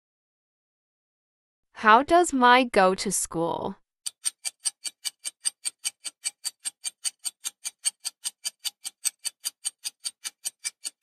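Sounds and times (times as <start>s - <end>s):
clock ticking: 4.1s - 11.0s.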